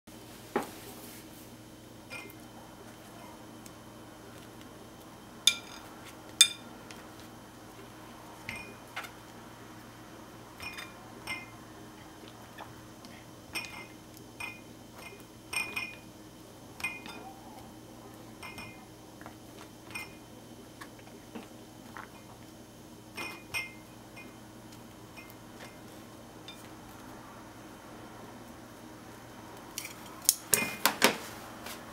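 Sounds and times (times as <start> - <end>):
chopsticks clinking ceramic bowl: 5.5 - 6.7.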